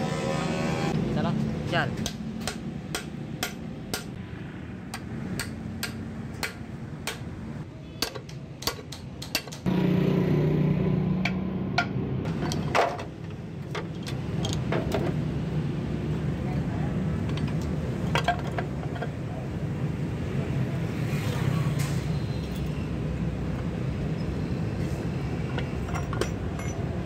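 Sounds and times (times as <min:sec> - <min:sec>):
hammer striking metal: 0:02.0 - 0:04.2, 0:04.9 - 0:07.3.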